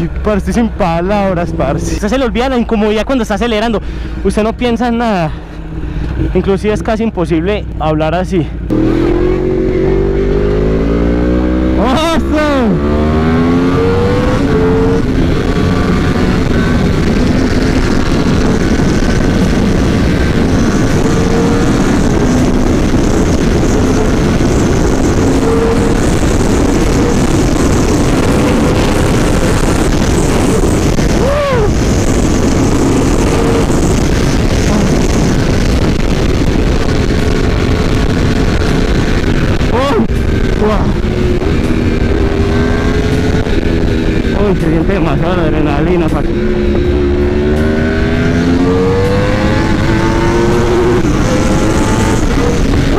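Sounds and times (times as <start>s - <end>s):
motorcycle engine running hard: 0.0s - 52.9s
wind rush on microphone: 8.5s - 52.9s.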